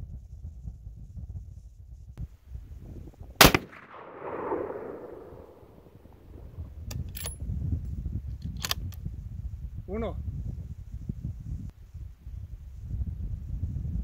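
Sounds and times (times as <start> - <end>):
rifle shot with rumbling tail: 3.3 - 7.4
sharp clicks: 8.4 - 9.0.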